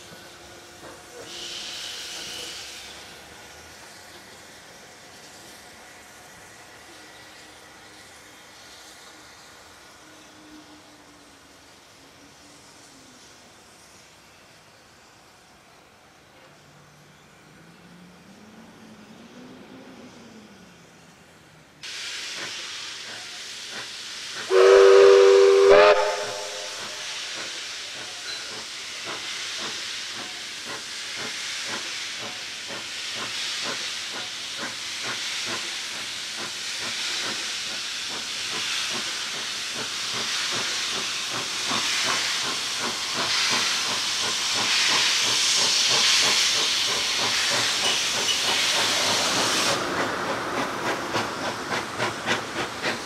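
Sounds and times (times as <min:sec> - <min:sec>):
steam hiss: 0:00.0 - 0:53.0
steam locomotive whistle: 0:01.3 - 0:02.8, 0:24.5 - 0:27.4.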